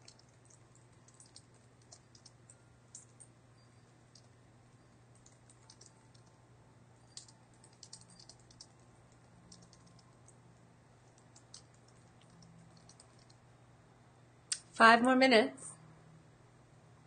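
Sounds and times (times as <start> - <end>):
keyboard typing: 0.0 - 4.4, 5.1 - 6.4, 7.0 - 10.4, 11.0 - 13.4
low steady hum: 0.0 - 17.0.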